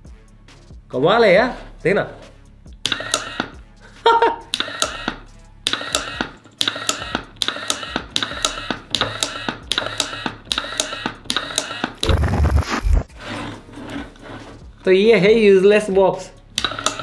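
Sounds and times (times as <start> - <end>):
toggle switch clicking: 2.8 - 3.6, 4.5 - 12.0.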